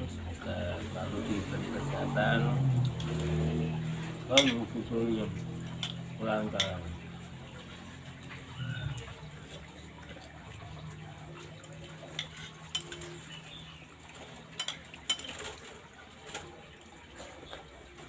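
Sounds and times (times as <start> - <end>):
spoons clinking on plates: 4.3 - 4.7, 5.6 - 6.9, 12.0 - 13.4, 14.5 - 15.5.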